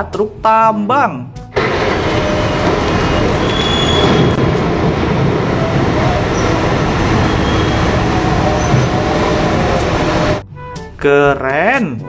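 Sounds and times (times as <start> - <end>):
dump truck diesel engines: 1.5 - 10.4.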